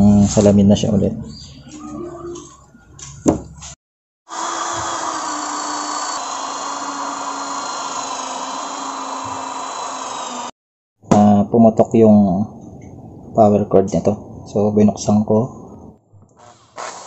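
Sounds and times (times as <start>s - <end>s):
electric polisher motor whine: 4.3s - 10.5s.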